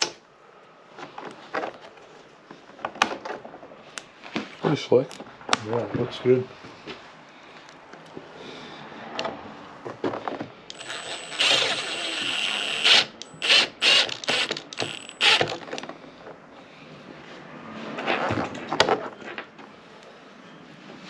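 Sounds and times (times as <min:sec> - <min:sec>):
cordless driver motor whine: 0:10.7 - 0:15.6
driver trigger bursts: 0:10.7 - 0:15.7.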